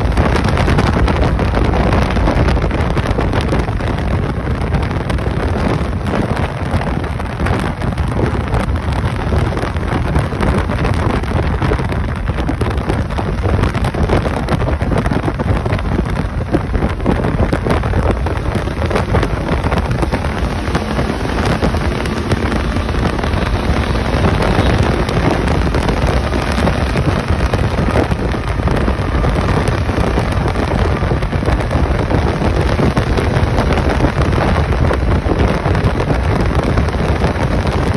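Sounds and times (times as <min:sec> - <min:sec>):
motorcycle engine drone: 0:00.0 - 0:37.9
tyre and road noise: 0:00.0 - 0:37.9
wind buffeting microphone: 0:00.0 - 0:37.9.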